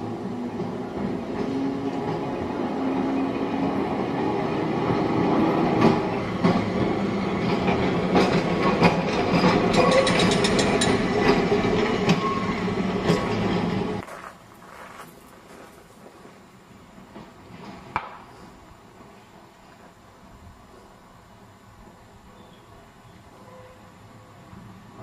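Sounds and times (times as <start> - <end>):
electric tram running on track: 0.0 - 25.0
wheels clicking over rails: 5.6 - 14.1.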